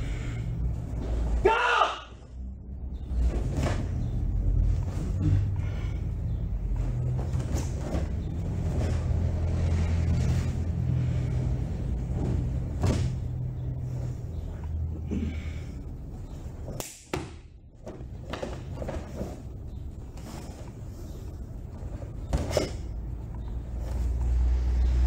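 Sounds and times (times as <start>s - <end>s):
bare feet on foam mats: 2.9s - 25.0s.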